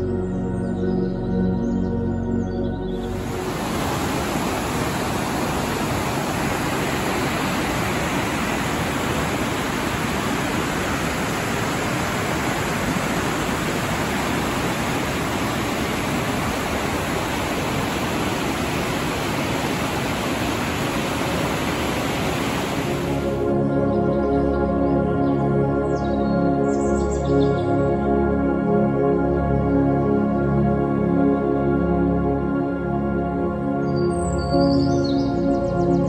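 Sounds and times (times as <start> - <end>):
whitewater rushing over rocks: 3.1 - 23.4.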